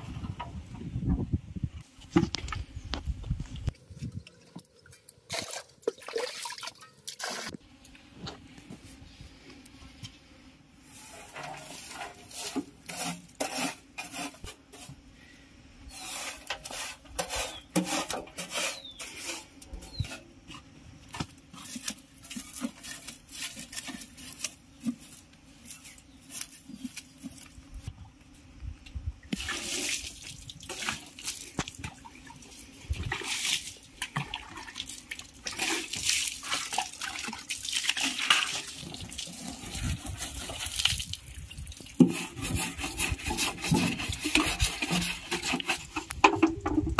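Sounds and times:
water splashing: 5.3s - 7.5s
stiff brush scrubbing metal: 10.8s - 15.0s, 15.9s - 27.5s, 35.4s - 46.9s.

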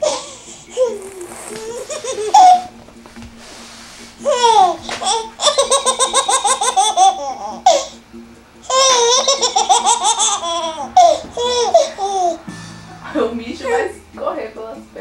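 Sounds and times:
baby laughing: 0.0s - 2.8s, 4.2s - 8.0s, 8.6s - 12.4s
baby squealing: 0.0s - 2.8s, 8.7s - 12.4s.

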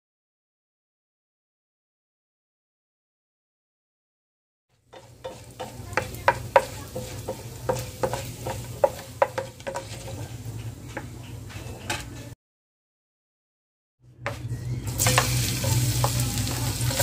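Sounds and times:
faint frying hiss: 4.7s - 12.3s, 14.3s - 17.0s
metal utensil clinking in pot: 5.0s - 10.3s, 14.9s - 17.0s.

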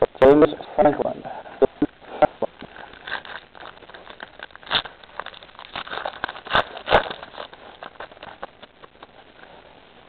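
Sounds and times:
foil wrappers crinkling: 2.6s - 9.6s.

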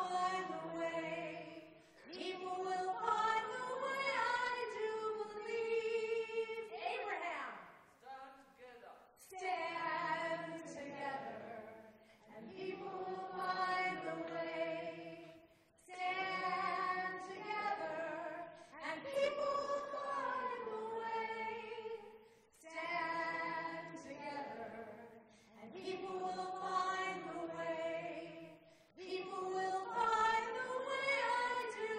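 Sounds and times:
audience singing in unison: 0.0s - 6.5s, 9.3s - 31.9s.

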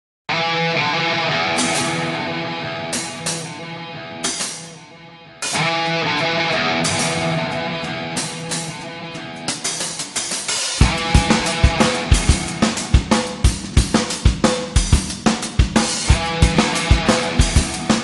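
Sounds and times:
electric guitar chords ringing: 0.3s - 9.9s, 10.8s - 13.8s, 16.0s - 18.0s
drum hits: 10.8s - 18.0s.

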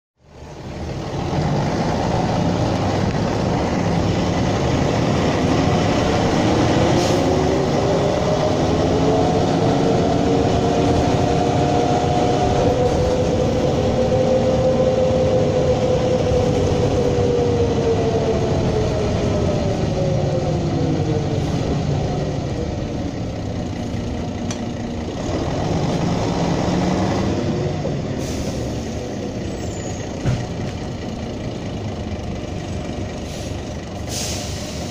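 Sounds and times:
bus diesel engine running: 0.2s - 34.9s.

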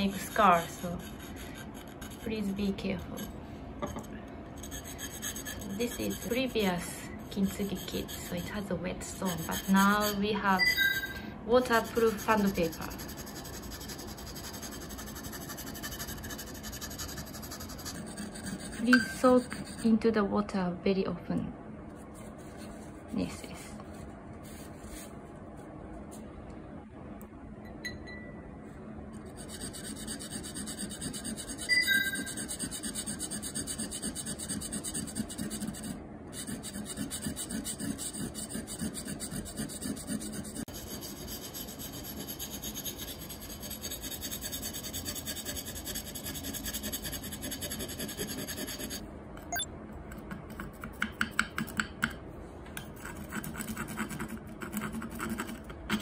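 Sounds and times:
whetstone grinding on ceramic: 11.8s - 19.7s
knife blade scraping: 12.0s - 19.8s.

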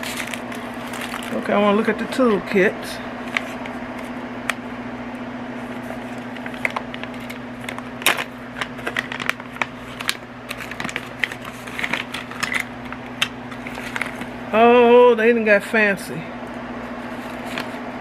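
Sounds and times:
packaging rustling and clicking: 0.0s - 1.4s, 5.8s - 14.4s, 17.2s - 17.8s
steady low hum: 0.0s - 18.0s.

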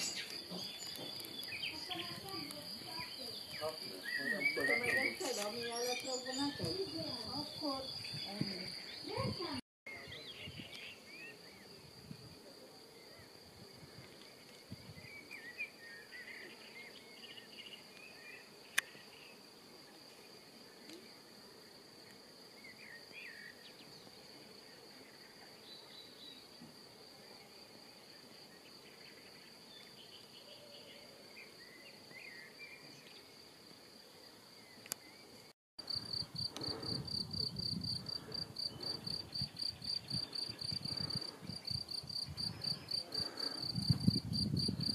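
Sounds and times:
bird chirps: 0.0s - 11.4s
crickets stridulating: 0.0s - 44.9s.

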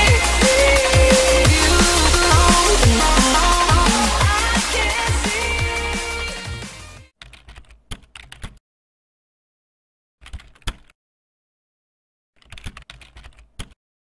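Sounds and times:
rapid keyboard key clicks: 7.2s - 8.6s, 10.2s - 10.9s, 12.4s - 13.8s.

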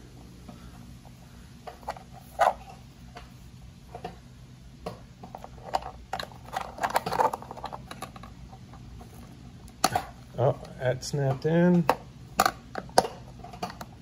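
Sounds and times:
plastic wheel cover clicking: 11.8s - 13.9s.

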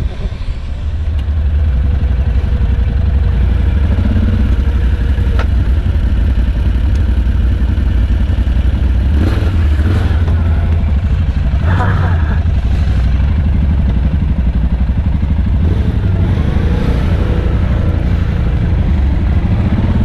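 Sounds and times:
atv engines idling: 0.0s - 20.0s.

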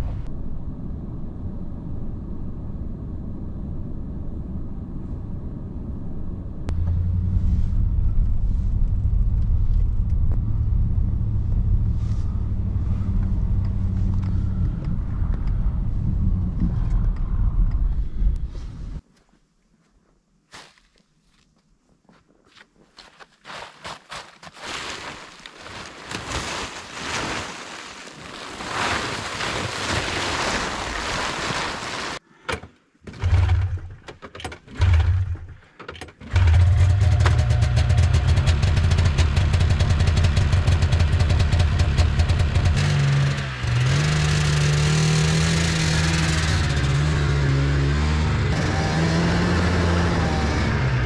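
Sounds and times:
snowmobile engine pull-started: 33.1s - 34.0s, 36.2s - 47.0s.

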